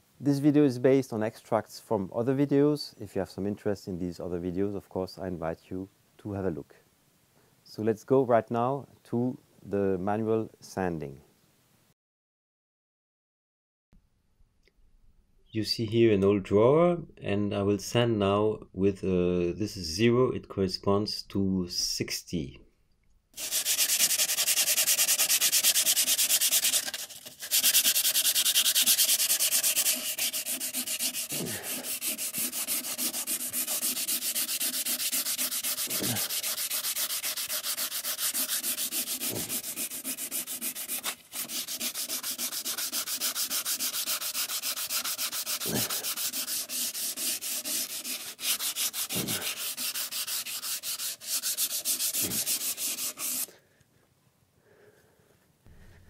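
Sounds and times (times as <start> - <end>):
sandpaper scraping wood: 23.4 - 53.5.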